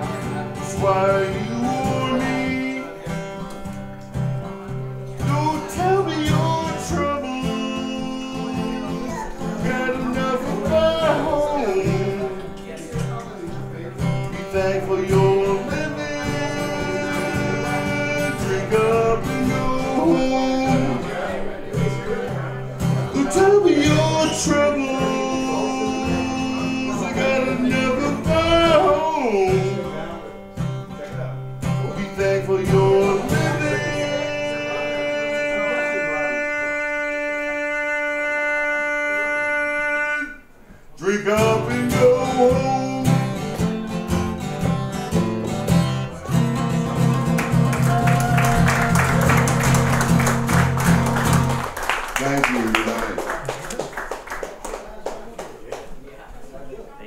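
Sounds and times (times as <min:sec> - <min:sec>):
live band with guitars: 0:00.0 - 0:54.8.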